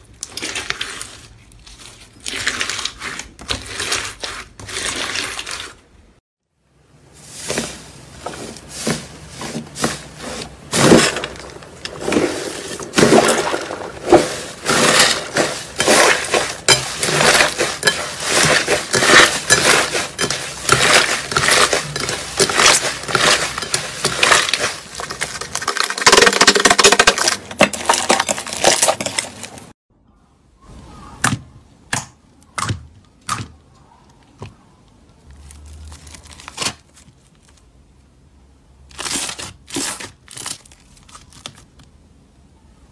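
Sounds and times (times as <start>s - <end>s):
slime crackling and squelching: 0.0s - 6.0s, 7.4s - 29.7s.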